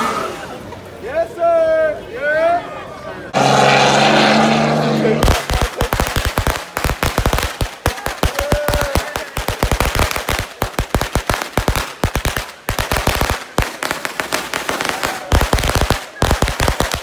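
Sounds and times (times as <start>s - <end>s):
firecrackers banging: 3.4s - 17.0s.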